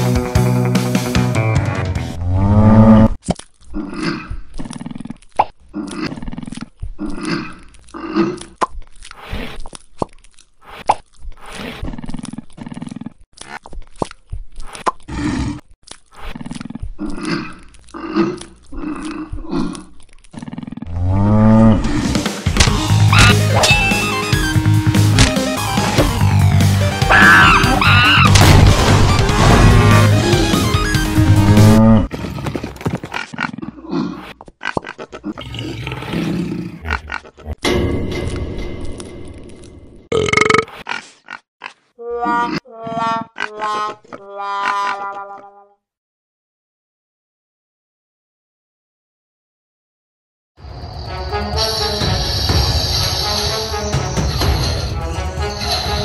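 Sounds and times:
music: 0.0 - 2.2, 22.0 - 31.8, 50.6 - 56.0
monster growls and roars: 15.1 - 23.6, 31.2 - 37.7.

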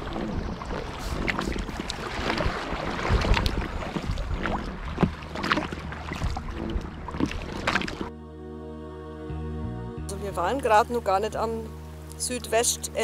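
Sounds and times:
paddle splashing water: 0.0 - 8.1
water lapping at hull: 0.0 - 8.1
wind on microphone: 0.0 - 8.1.

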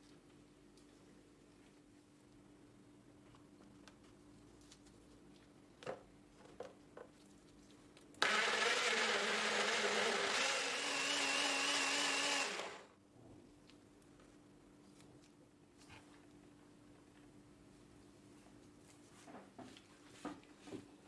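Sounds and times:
blender motor running: 8.2 - 12.9.

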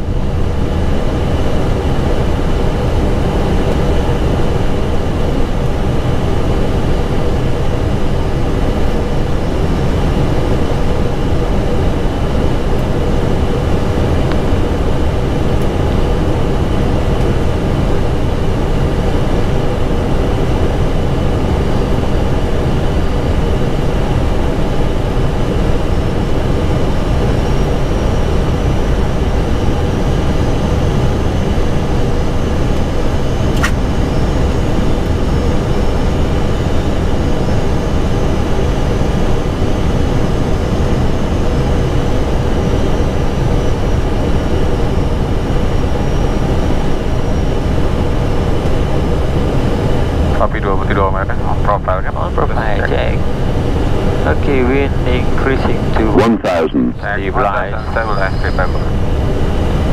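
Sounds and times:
aircraft engine hum: 0.0 - 59.9
airflow rushing in cockpit: 49.5 - 59.9
faint high whine rising: 54.2 - 59.4.

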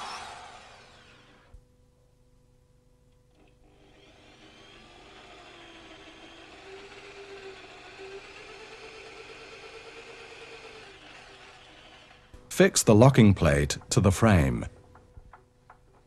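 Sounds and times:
electric drill boring into wood: 0.0 - 1.6, 3.4 - 12.4.

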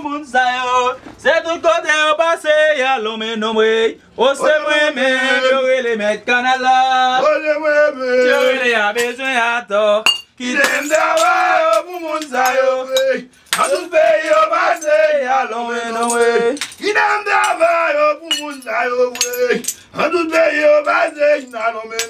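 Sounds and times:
broken glass clinking: 8.2 - 9.3, 10.1 - 15.2, 15.8 - 19.9.

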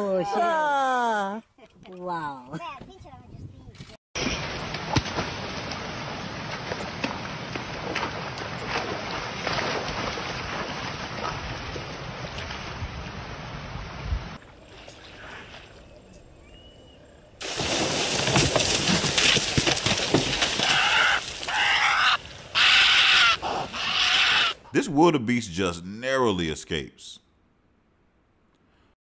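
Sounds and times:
water splashing and sloshing: 4.2 - 16.2, 17.4 - 22.6
loud burst of splashing: 17.4 - 23.1
loud cries: 20.6 - 24.6.

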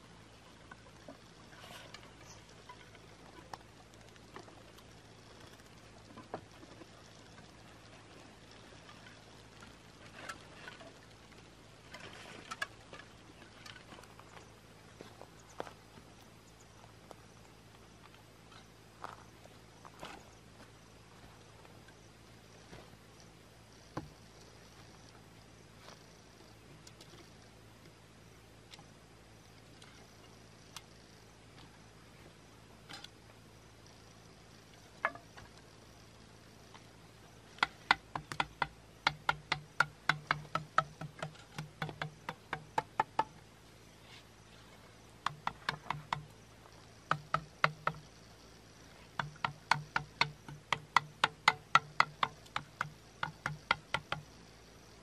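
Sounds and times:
blade chopping bamboo: 37.6 - 43.3, 49.2 - 54.3.

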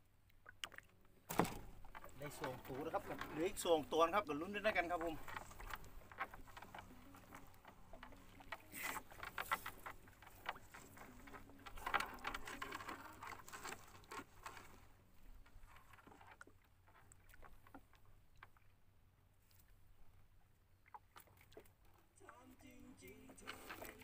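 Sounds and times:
net rustling: 1.3 - 16.2.

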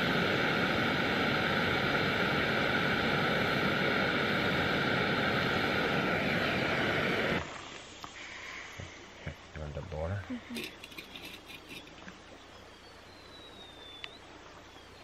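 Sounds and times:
gas stove burner hissing: 0.0 - 9.3.

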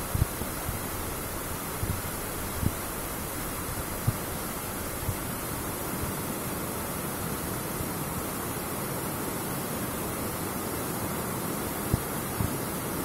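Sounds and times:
stream cascading over rocks: 0.0 - 13.0.

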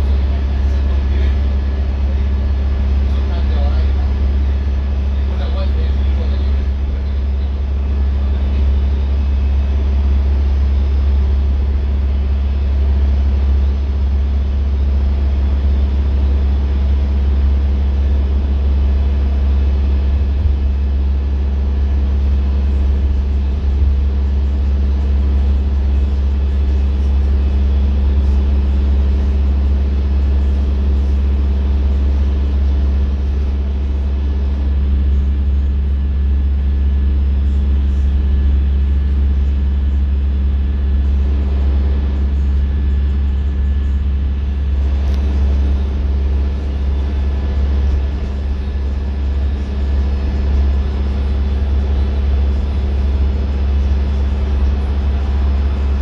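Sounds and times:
bus engine drone: 0.0 - 56.0
road noise: 40.8 - 56.0.

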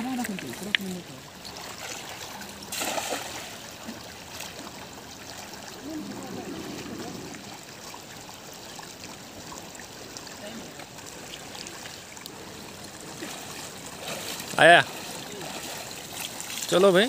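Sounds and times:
river water running over stones: 0.0 - 17.0
net splashing on water: 1.6 - 4.6.

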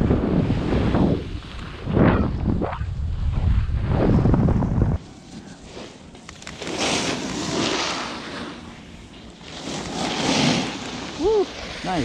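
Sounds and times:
wind buffeting microphone: 0.0 - 5.0.

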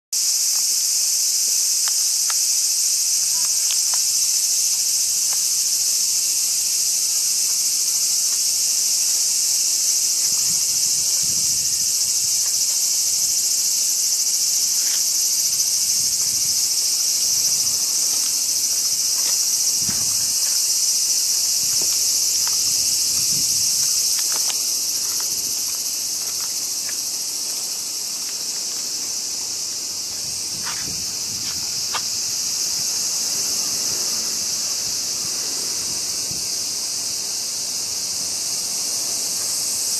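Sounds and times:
cicadas singing: 0.2 - 39.9
footsteps: 3.2 - 28.9, 30.1 - 32.2.

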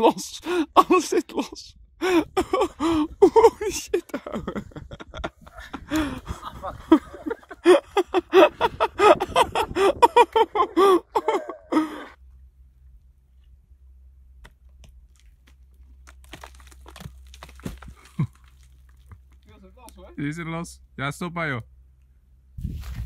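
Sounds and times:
low steady hum: 0.0 - 23.0
man laughing heartily: 2.0 - 12.2, 18.0 - 18.4
faint crunches and clicks: 14.4 - 20.1.

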